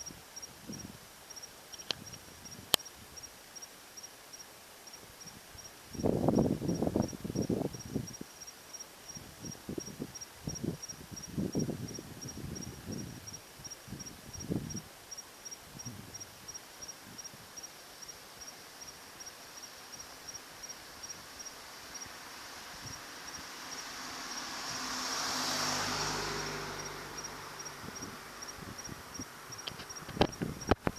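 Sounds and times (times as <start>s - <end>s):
cricket chirping: 0.0s - 30.9s
broad swell of noise: 20.4s - 29.6s.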